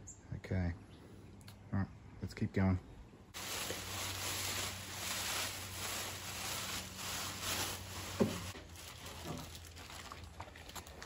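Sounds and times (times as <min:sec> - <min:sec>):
plastic wrapping crinkling: 0:03.4 - 0:11.0.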